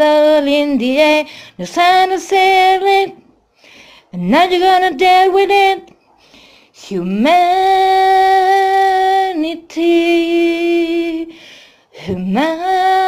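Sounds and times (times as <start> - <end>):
singer breath: 1.2 - 1.6, 3.5 - 4.2, 6.0 - 6.8, 11.3 - 12.0.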